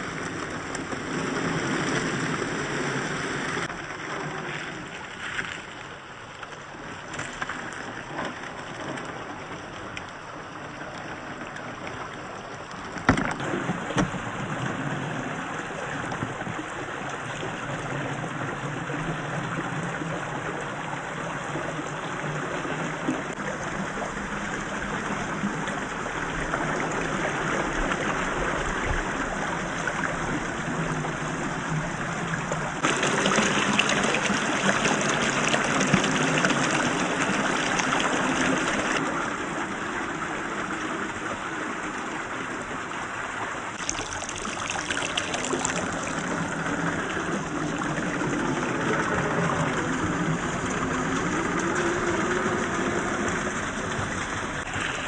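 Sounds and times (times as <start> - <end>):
creek water flowing: 0.0 - 55.0.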